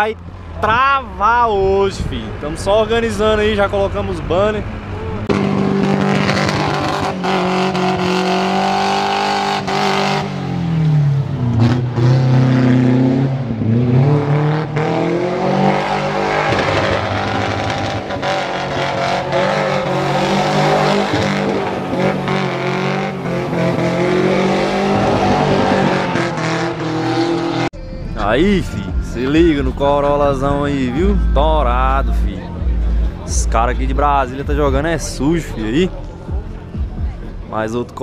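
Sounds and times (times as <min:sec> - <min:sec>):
car engine at high revs: 0:02.3 - 0:27.7.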